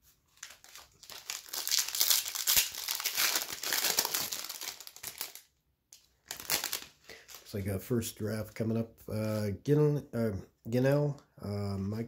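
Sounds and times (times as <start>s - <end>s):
foil wrapper crinkling: 0.3s - 7.5s.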